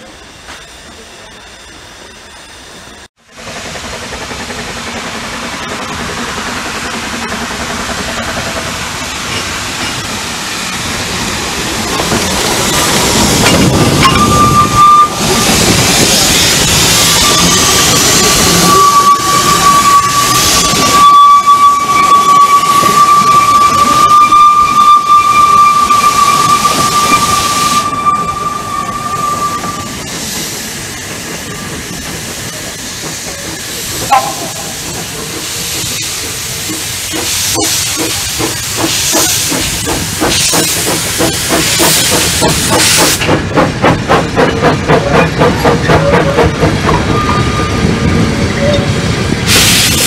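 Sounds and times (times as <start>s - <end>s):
steam locomotive exhaust beats: 3.3s - 50.0s
steam locomotive whistle: 14.0s - 15.6s, 17.0s - 30.0s, 34.0s - 34.9s.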